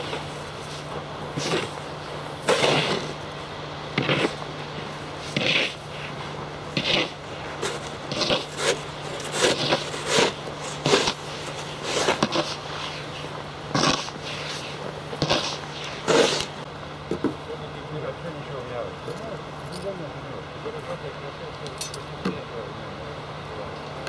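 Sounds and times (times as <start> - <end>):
snow shovel scraping snow: 0.0 - 3.2, 4.0 - 4.4, 5.2 - 16.6.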